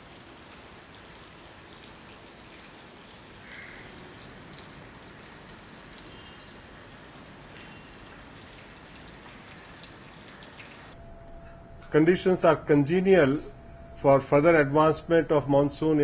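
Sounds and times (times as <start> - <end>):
rain hissing: 0.0 - 11.0.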